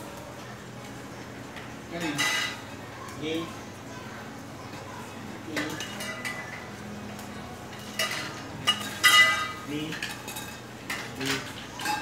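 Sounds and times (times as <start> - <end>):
metal tubes clinking and clanking: 7.7 - 12.0.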